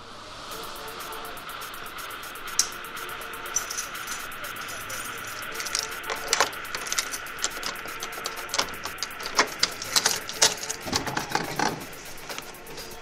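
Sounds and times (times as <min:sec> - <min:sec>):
faint steady tone: 0:00.0 - 0:13.0
keys jangling: 0:03.5 - 0:12.5.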